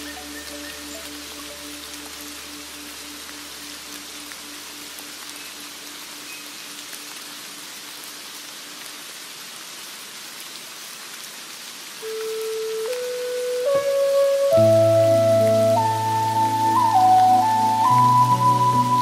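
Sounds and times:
steady rain falling: 0.0s - 19.0s
instrumental music: 12.0s - 19.0s.

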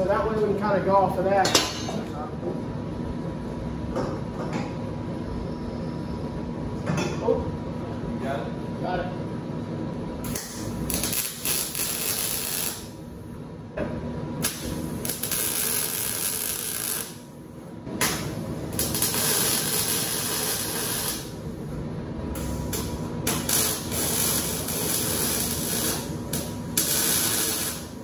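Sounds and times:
welding arc hissing: 10.2s - 13.1s, 14.4s - 17.4s, 18.2s - 21.6s, 22.3s - 28.0s.

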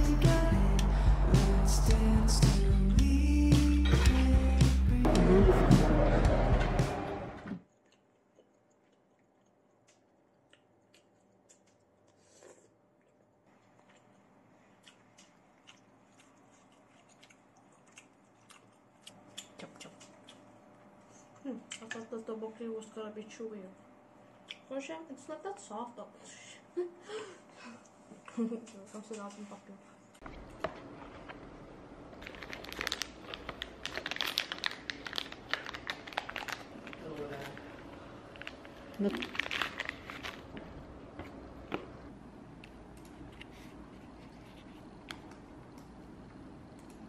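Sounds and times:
wet lip-smacking while chewing: 7.7s - 20.5s, 24.4s - 24.7s
plastic wrapper crackling: 32.2s - 40.6s.

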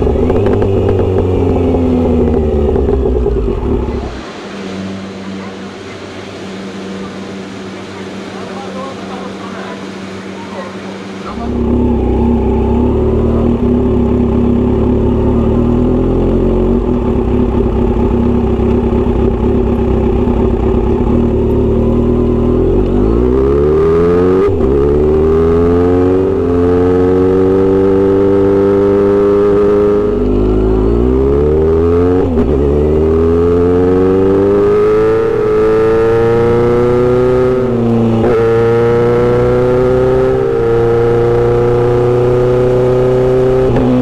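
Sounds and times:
motorcycle engine idling: 0.0s - 4.1s, 11.3s - 22.6s
motorcycle accelerating with upshifts: 0.0s - 5.8s, 11.0s - 44.0s.

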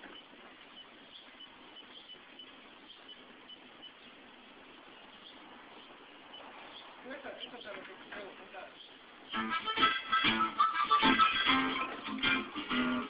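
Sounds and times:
small animal chirping: 0.0s - 7.7s, 8.7s - 9.5s
steady hiss: 0.0s - 13.0s.

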